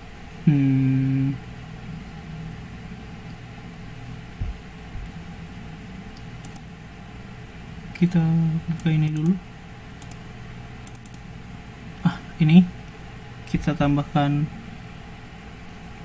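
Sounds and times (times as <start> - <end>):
steady low hum: 0.0 - 16.0
man's hesitation sound: 0.4 - 1.5
soft low thumps: 4.4 - 5.2.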